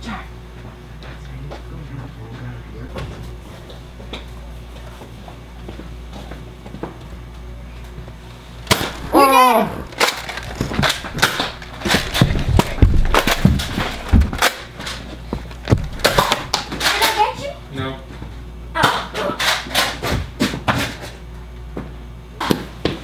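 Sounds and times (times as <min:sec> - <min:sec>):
person yelling: 0:09.0 - 0:09.9
toy blasters clacking and thumping: 0:09.9 - 0:15.0.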